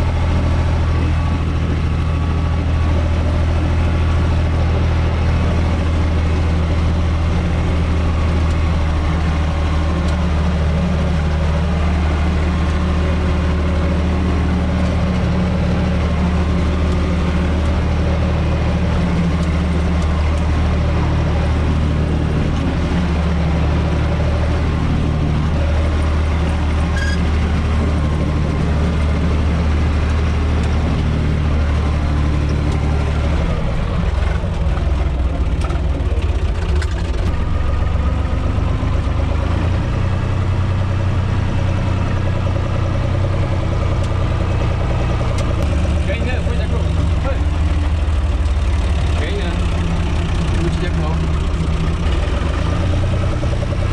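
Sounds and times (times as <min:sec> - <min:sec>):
tractor diesel engine running: 0:00.0 - 0:53.9.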